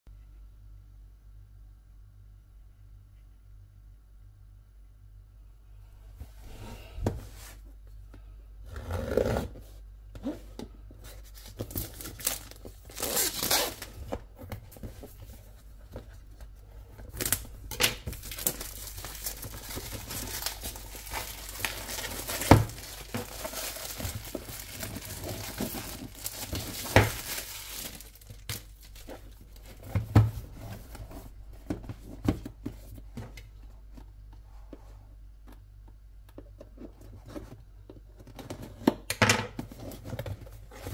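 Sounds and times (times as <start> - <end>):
packaging tearing and crinkling: 11.3 - 14.1, 17.1 - 29.9.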